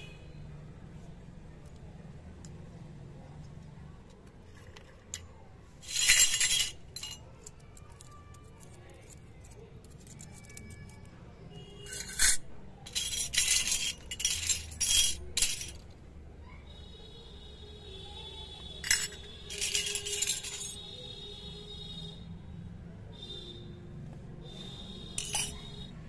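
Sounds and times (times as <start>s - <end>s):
toy spoons and forks clinking: 4.5s - 11.1s, 11.8s - 16.0s, 18.8s - 20.8s, 25.1s - 25.9s.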